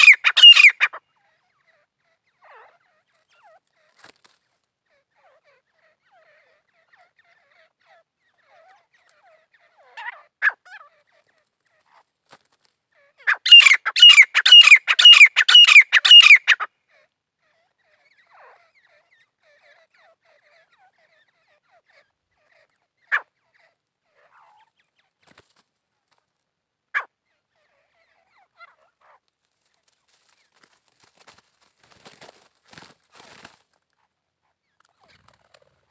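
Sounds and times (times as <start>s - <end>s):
francolin calling: 0.0s - 1.0s, 13.2s - 16.7s.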